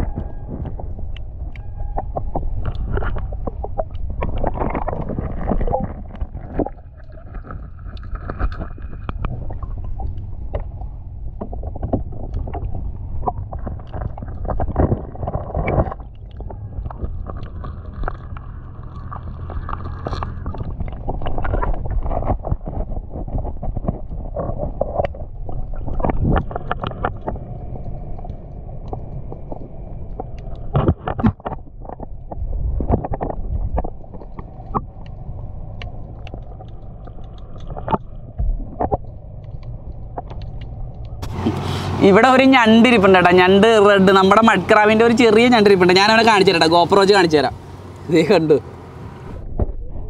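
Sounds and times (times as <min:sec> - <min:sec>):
underwater rumble of moving water: 0:00.0 - 0:50.0
clicks and knocks of oysters: 0:00.6 - 0:41.6.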